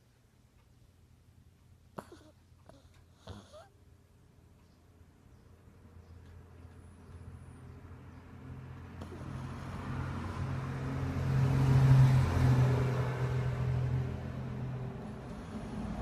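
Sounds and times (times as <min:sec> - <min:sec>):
dog snoring: 0:01.9 - 0:03.8, 0:09.0 - 0:10.4, 0:15.0 - 0:16.0.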